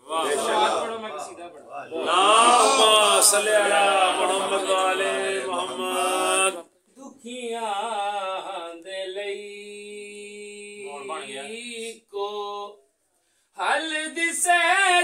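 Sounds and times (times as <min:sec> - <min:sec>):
man chanting unaccompanied: 0:01.9 - 0:12.8.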